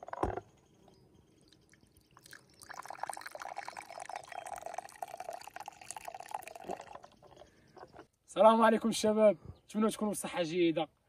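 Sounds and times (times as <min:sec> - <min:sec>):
coffee pouring into ceramic cup: 0:01.4 - 0:07.5.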